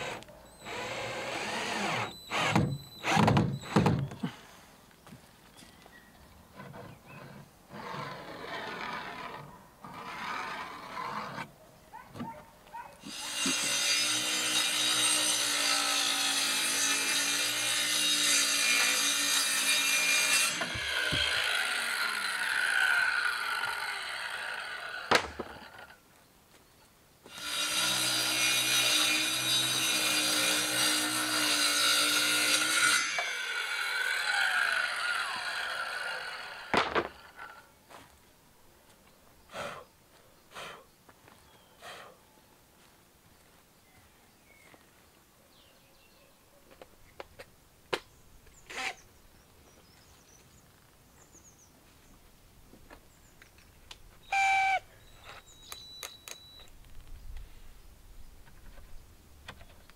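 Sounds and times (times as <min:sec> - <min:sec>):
power saw cutting wood: 0:00.0 - 0:03.8, 0:13.1 - 0:25.9, 0:27.3 - 0:37.6.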